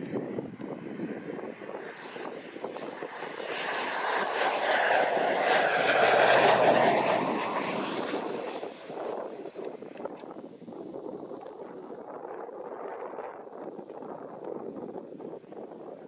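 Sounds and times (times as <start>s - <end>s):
turboprop plane passing: 0.2s - 14.2s
high turbine whine: 0.4s - 12.4s.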